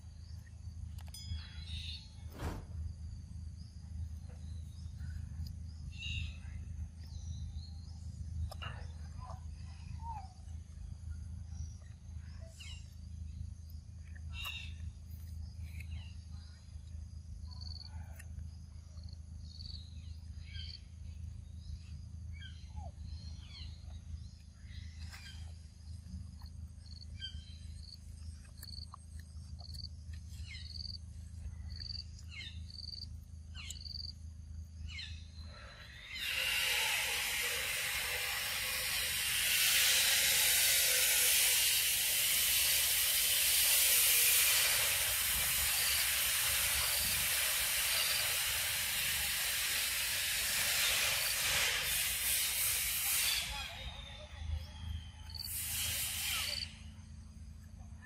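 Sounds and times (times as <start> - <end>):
low steady rumble: 0.0 - 36.1
loud steady hiss: 2.3 - 4.3, 34.9 - 57.1.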